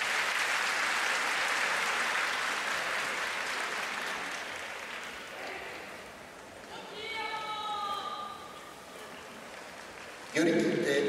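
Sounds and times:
audience applauding: 0.0s - 5.4s, 9.1s - 10.8s.

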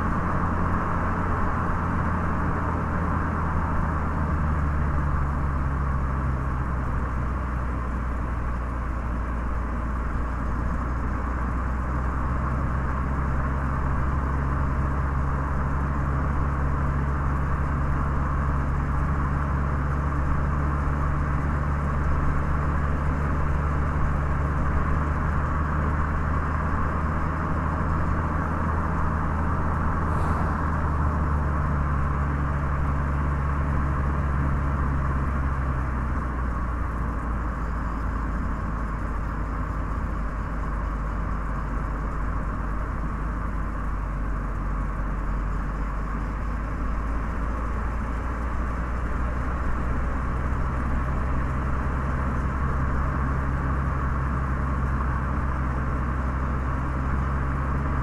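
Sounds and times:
car engine drone: 0.0s - 58.0s
tyres hissing on road: 29.0s - 33.2s.

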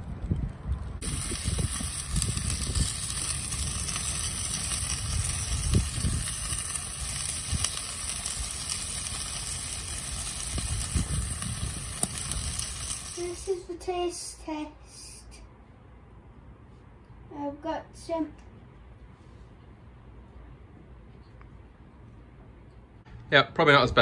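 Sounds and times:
low rumble: 0.0s - 13.2s
chicken sizzling in a pan: 1.0s - 13.5s.

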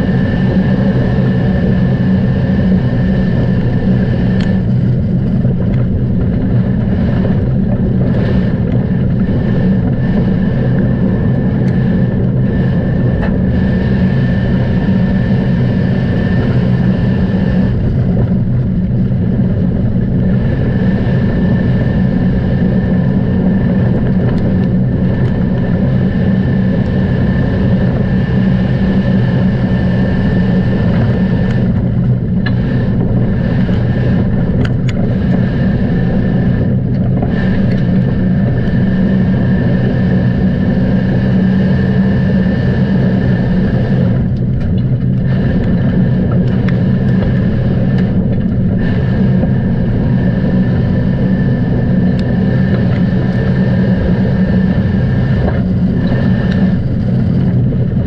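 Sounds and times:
vehicle engine running steadily: 0.0s - 58.0s.

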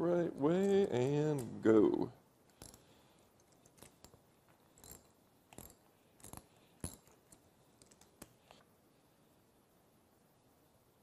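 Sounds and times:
socket ratchet clicking: 3.4s - 8.3s.

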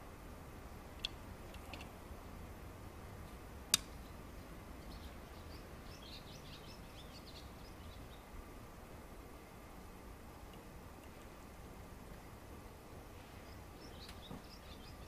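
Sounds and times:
low outdoor hum: 0.0s - 15.0s
small birds chirping: 3.2s - 8.5s, 12.0s - 15.0s.

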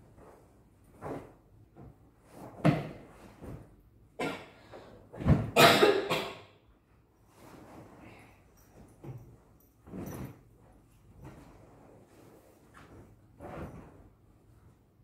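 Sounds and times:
fabric rustling and flapping: 0.0s - 4.0s, 7.3s - 15.0s.

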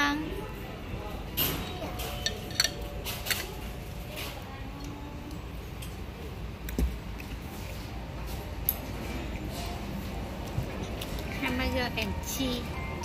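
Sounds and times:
restaurant background noise: 0.0s - 13.0s
tableware clinking: 1.4s - 3.8s.

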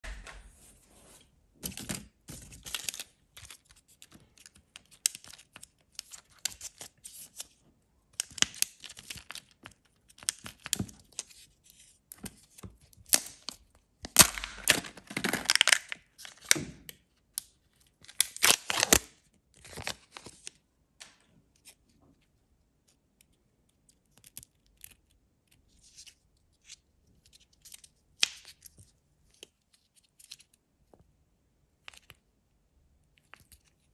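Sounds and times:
foil wrapper crinkling and tearing: 13.1s - 16.5s, 18.1s - 20.5s.

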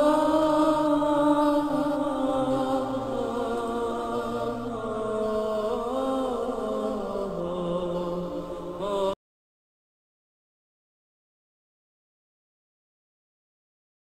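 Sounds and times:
low drone: 0.0s - 9.2s
person chanting long notes: 0.0s - 9.2s.

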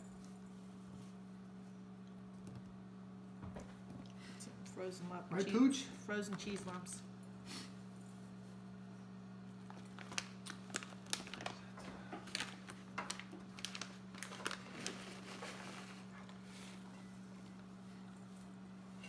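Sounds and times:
steady low hum: 0.0s - 19.0s
cheese package crinkling: 9.5s - 16.2s.

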